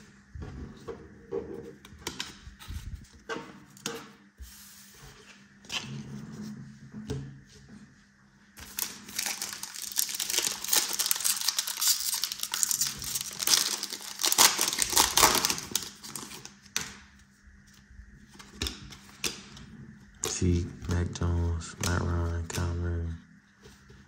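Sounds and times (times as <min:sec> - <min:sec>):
foil wrapper crinkling: 0:08.6 - 0:16.8.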